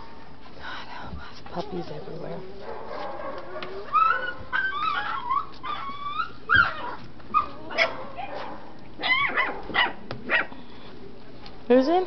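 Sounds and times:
puppies whining and yipping: 0:01.7 - 0:08.4, 0:09.0 - 0:10.9
puppies barking: 0:02.5 - 0:10.6.

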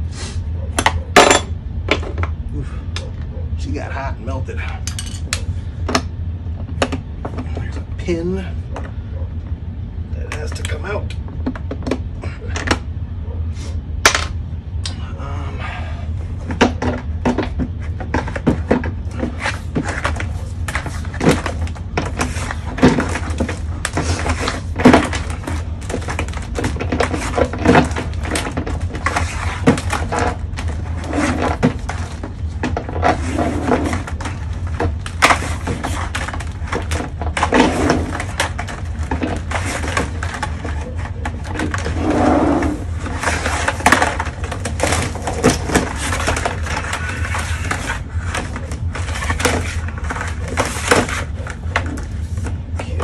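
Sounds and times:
steady low hum: 0:00.0 - 0:53.0
cable clicking and rattling: 0:42.8 - 0:53.0.

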